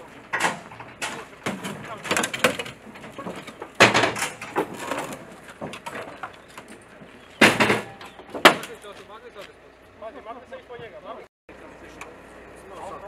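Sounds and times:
metal panels clattering and scraping: 0:00.0 - 0:08.9
loud metal bang: 0:07.4 - 0:08.8.

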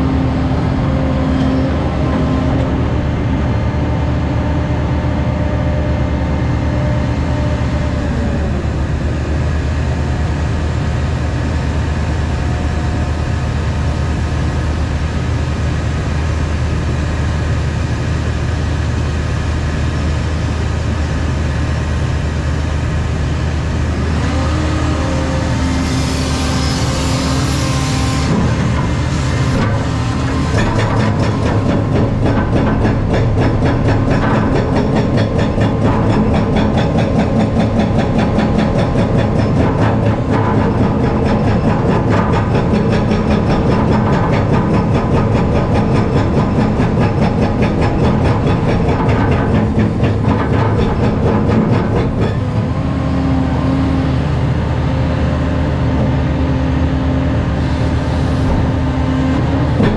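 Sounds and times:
excavator diesel engine running: 0:00.0 - 0:59.9
hydraulic whine: 0:23.1 - 0:59.9.

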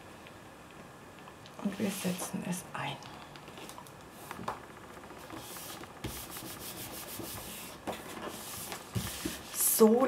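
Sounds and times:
paper rubbing on tabletop: 0:05.3 - 0:09.9.

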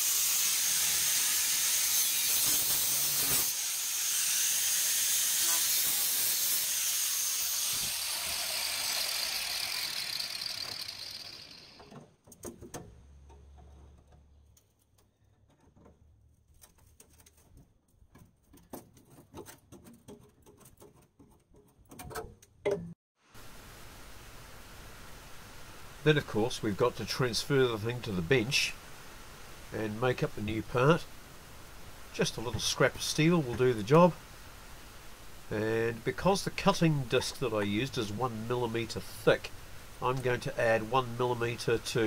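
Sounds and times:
angle grinder cutting sheet steel: 0:00.0 - 0:11.9
metal clicking and knocking: 0:11.8 - 0:22.9.

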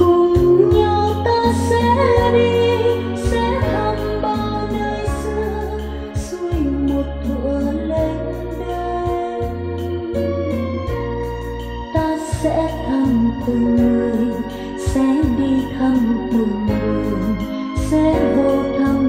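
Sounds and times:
person singing: 0:00.0 - 0:11.1, 0:11.8 - 0:19.0
keyboard and bass: 0:00.0 - 0:19.0.

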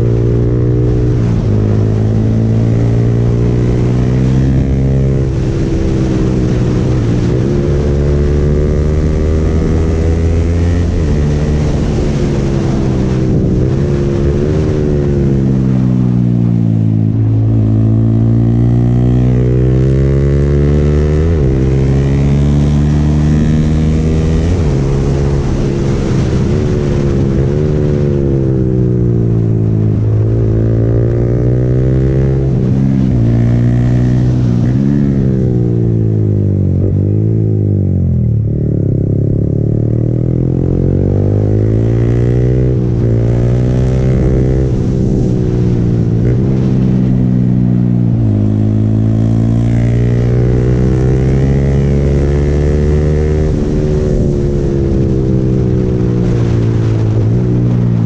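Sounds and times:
motorcycle engine revving: 0:00.0 - 0:58.0.

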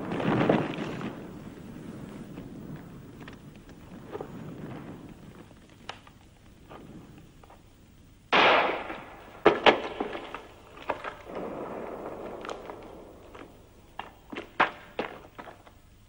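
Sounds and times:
sharp cracks: 0:00.0 - 0:07.6, 0:08.3 - 0:15.9
loud gunshot: 0:08.3 - 0:10.4.

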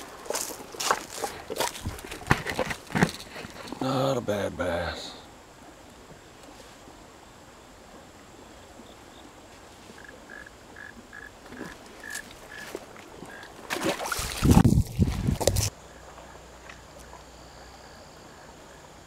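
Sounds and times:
camera handling rustling and knocking: 0:01.6 - 0:03.8.

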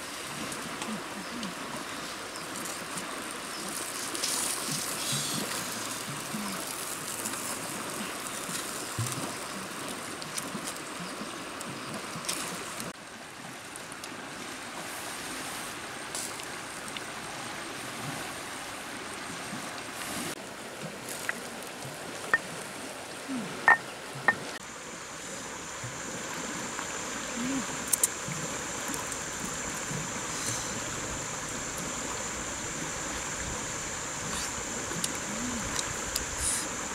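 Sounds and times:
river water rushing: 0:00.0 - 0:36.9.

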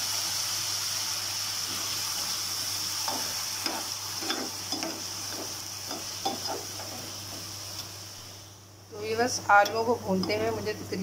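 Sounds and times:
potatoes sizzling in oil: 0:00.0 - 0:11.0
spoon scraping and knocking pan: 0:03.0 - 0:07.6.

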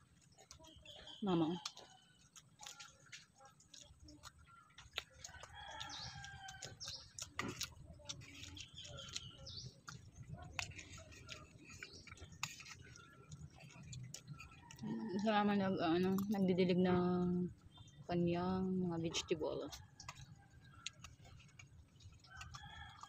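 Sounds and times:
chewing mouth clicks: 0:00.0 - 0:16.7, 0:17.5 - 0:18.1, 0:19.1 - 0:23.0
rooster crowing: 0:05.3 - 0:06.7, 0:22.3 - 0:23.0.

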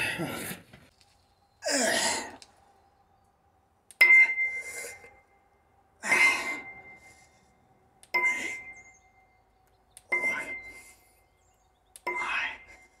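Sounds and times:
metal dumbbells clinking: 0:08.1 - 0:08.8.

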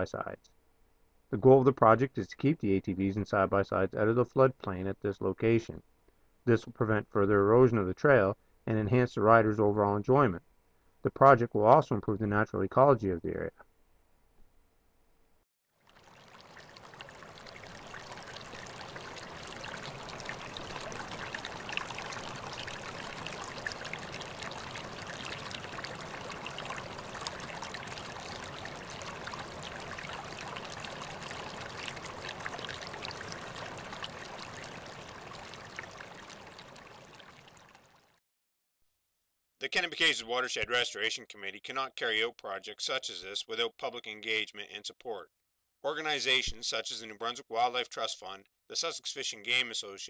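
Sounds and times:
small stream running: 0:15.7 - 0:38.2.

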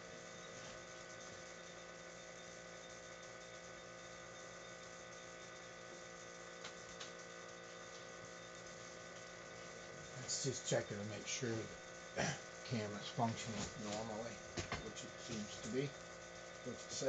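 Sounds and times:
faint electrical hum: 0:00.0 - 0:17.0.

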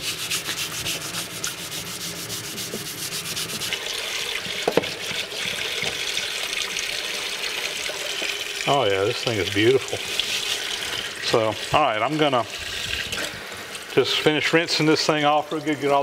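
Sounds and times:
pad scrubbing metal: 0:00.0 - 0:03.8
tap water running: 0:00.0 - 0:16.0.

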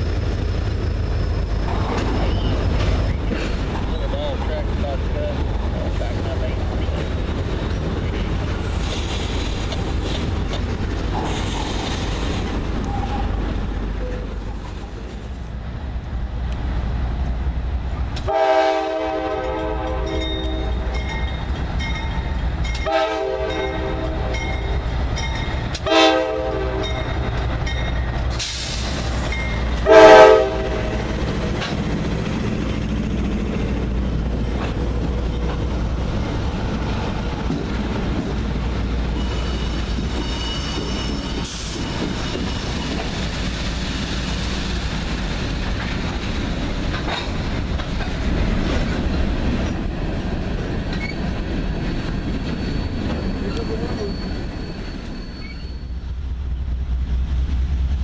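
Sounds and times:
freight train rumbling: 0:00.0 - 0:58.0
locomotive air horn: 0:18.3 - 0:20.9, 0:22.8 - 0:24.6, 0:25.8 - 0:27.0, 0:29.8 - 0:31.0.

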